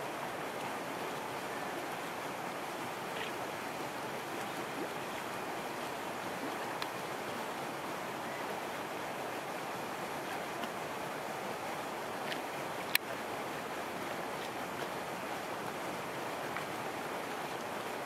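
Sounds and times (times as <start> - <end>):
small waves lapping: 0.0 - 18.0
faint tick: 6.8 - 7.0, 12.3 - 13.1.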